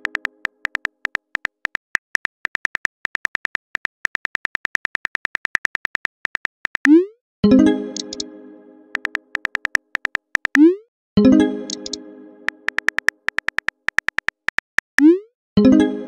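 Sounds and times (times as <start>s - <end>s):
phone keyboard clicks: 0.0s - 6.9s, 8.0s - 8.2s, 9.0s - 10.6s, 11.7s - 12.0s, 12.6s - 15.1s.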